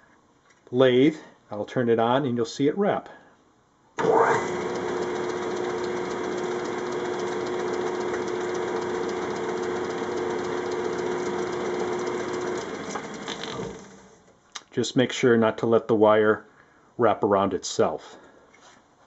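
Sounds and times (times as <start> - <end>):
metal lathe running: 4.0 - 14.2.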